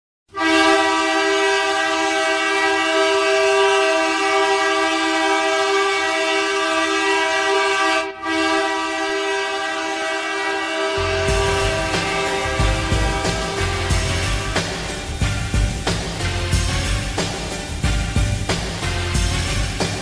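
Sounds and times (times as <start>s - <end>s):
goal horn blasting: 0.3s - 17.4s.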